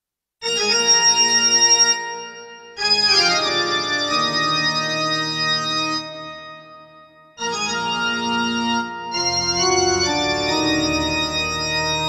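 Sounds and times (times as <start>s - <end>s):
keyboard playing organ chords: 0.4s - 12.0s.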